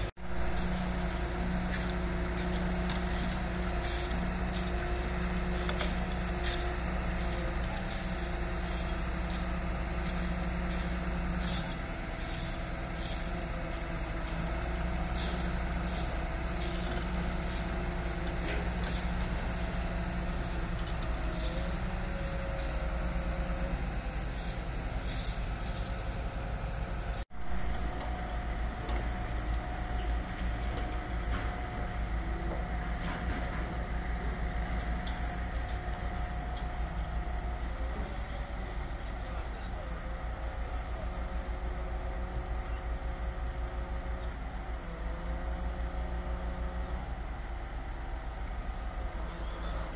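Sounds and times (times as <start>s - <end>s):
diesel engines running: 0.0s - 49.9s.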